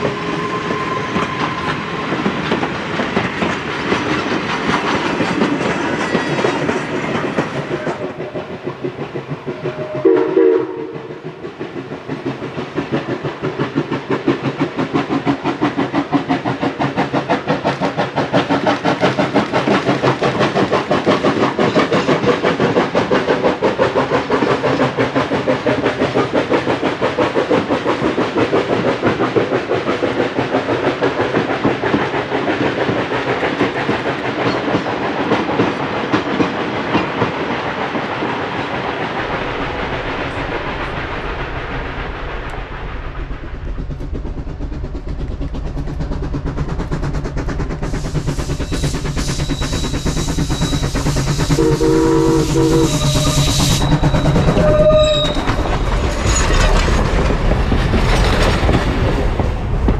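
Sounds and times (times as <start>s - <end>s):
train coaches clattering over rail joints: 0.0s - 41.9s, 43.9s - 59.9s
steam locomotive chuffing: 0.0s - 59.9s
steam whistle blast: 9.6s - 11.2s, 51.5s - 55.6s.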